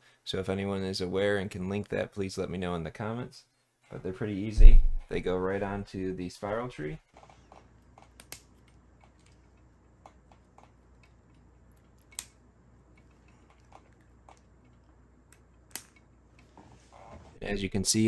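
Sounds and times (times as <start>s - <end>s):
sharp plastic snaps: 8.0s - 9.4s, 11.8s - 12.4s, 15.3s - 16.1s.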